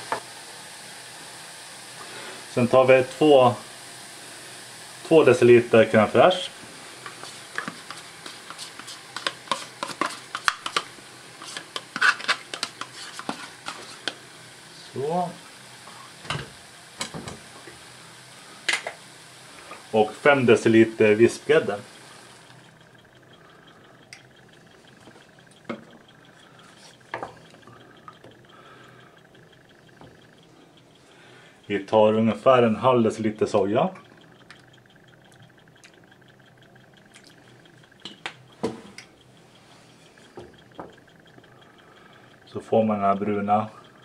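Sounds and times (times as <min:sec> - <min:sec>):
utensil clicking on tub and pan: 0:07.0 - 0:14.2.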